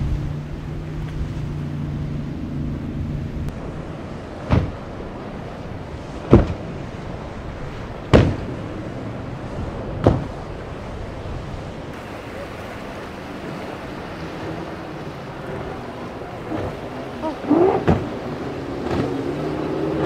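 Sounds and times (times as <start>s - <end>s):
boat engine drone: 0.0s - 20.0s
surf: 0.0s - 20.0s
wind: 0.0s - 20.0s
boat hull slamming on waves: 3.5s - 20.0s.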